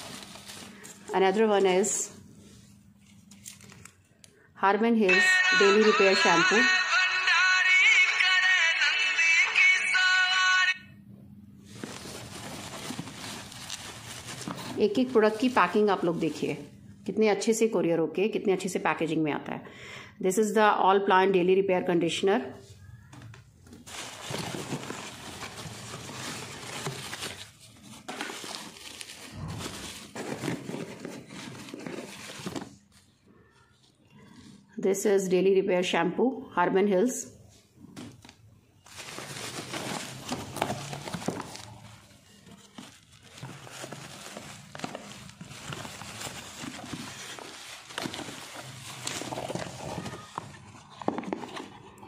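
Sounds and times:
packaging rustling and crinkling: 0:00.0 - 0:01.8, 0:02.9 - 0:04.1, 0:11.6 - 0:16.6, 0:23.6 - 0:33.2, 0:38.0 - 0:52.0.

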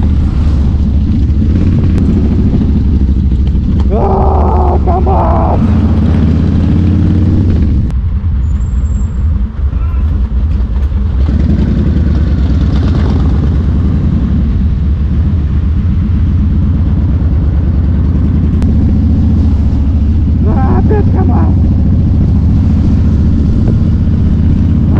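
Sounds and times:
motorcycle v-twin engine running: 0:00.1 - 0:03.9, 0:10.8 - 0:24.9.

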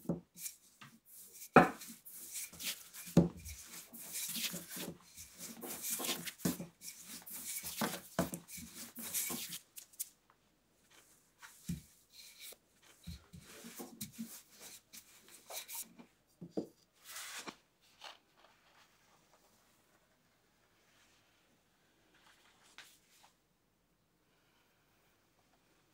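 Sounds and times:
rolling pin rolling dough: 0:00.0 - 0:10.0, 0:11.4 - 0:15.8.

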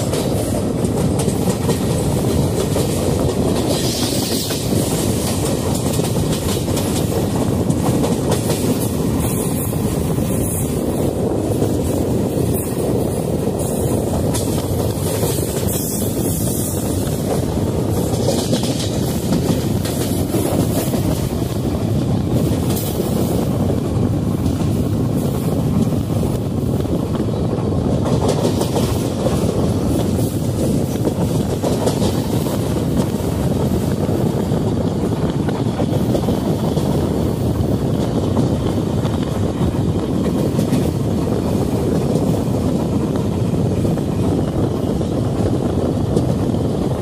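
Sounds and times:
train wheels on rails: 0:00.0 - 0:47.0.

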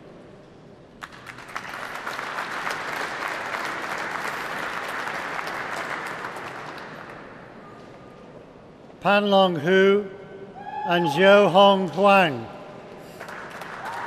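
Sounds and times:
audience applauding: 0:01.0 - 0:07.3, 0:13.2 - 0:14.0.

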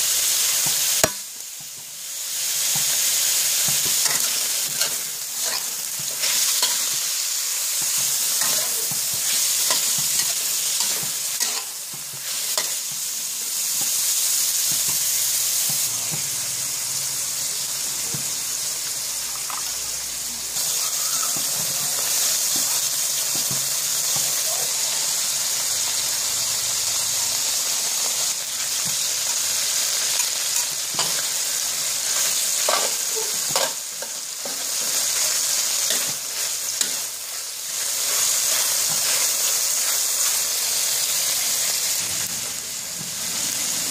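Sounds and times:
food sizzling in hot oil: 0:00.0 - 0:43.9
metal spatula scraping wok: 0:02.5 - 0:12.9, 0:29.1 - 0:43.9.

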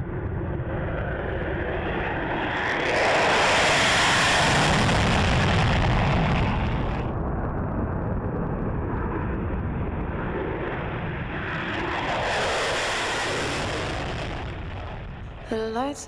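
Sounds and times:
jet engines roaring: 0:00.0 - 0:15.9.

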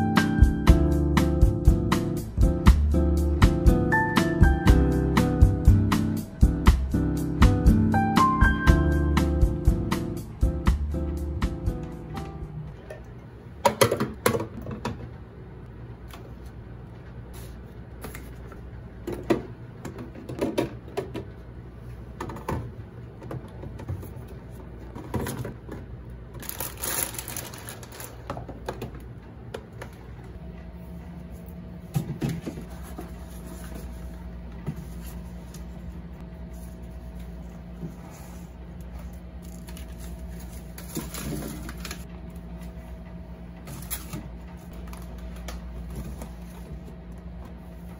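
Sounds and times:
cans and bottles clattering in fridge: 0:13.6 - 0:15.2, 0:19.0 - 0:21.4, 0:22.1 - 0:30.1, 0:31.8 - 0:33.4, 0:39.6 - 0:42.1
plastic packaging rustling: 0:26.4 - 0:28.7, 0:39.4 - 0:42.1
steady low hum: 0:27.4 - 0:47.9.

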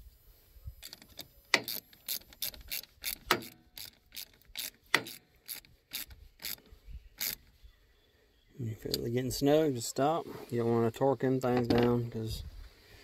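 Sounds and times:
socket ratchet clicking: 0:00.8 - 0:06.6, 0:07.2 - 0:07.4.

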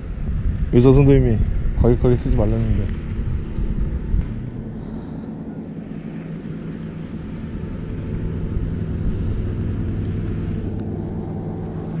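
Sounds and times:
engine drone: 0:00.0 - 0:12.0.

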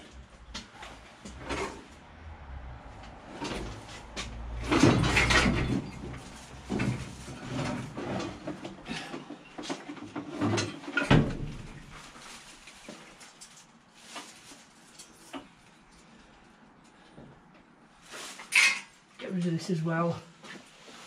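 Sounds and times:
knocks bumps and rattles: 0:02.8 - 0:12.0.

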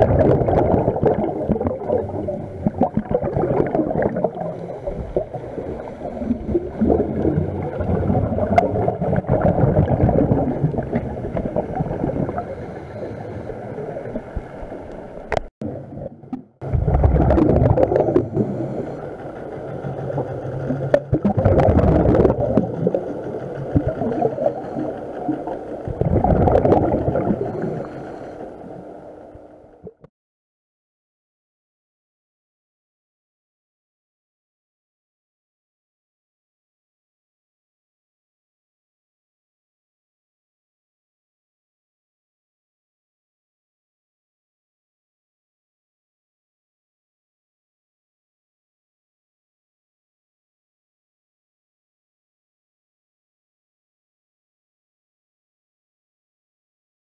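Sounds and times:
underwater bubbles gurgling: 0:00.0 - 0:30.1.

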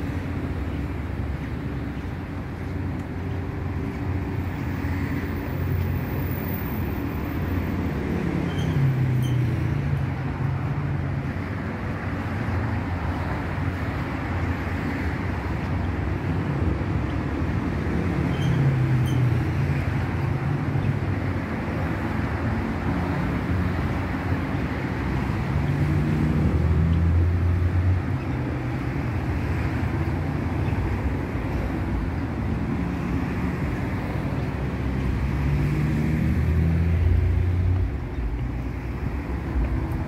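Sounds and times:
hum of traffic: 0:00.0 - 0:40.0
passing vehicle engine: 0:31.8 - 0:40.0.

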